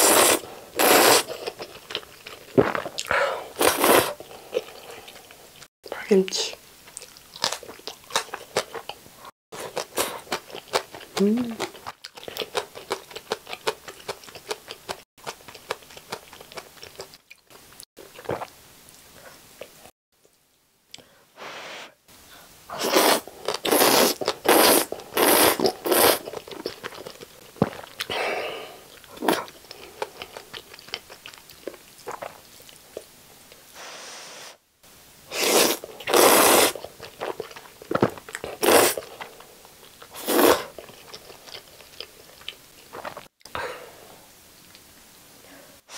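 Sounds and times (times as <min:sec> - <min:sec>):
loud noodle slurps: 0:00.0 - 0:01.5, 0:03.6 - 0:04.2, 0:22.7 - 0:26.4, 0:35.3 - 0:36.8, 0:38.6 - 0:39.1, 0:40.2 - 0:40.7
wet chewing: 0:09.6 - 0:18.5, 0:22.9 - 0:28.1.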